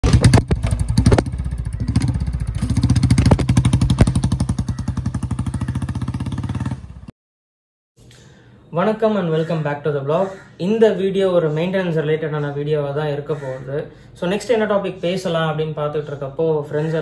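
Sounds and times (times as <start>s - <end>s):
motorcycle engine revving: 0.0s - 7.1s
motorcycle riding away: 0.0s - 7.1s.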